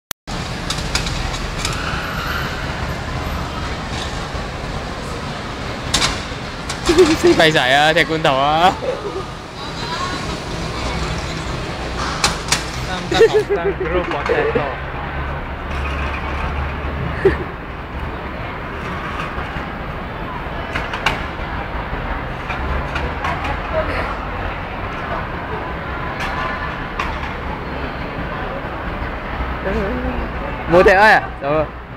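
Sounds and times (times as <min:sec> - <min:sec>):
street traffic rumble: 0:00.3 - 0:31.9.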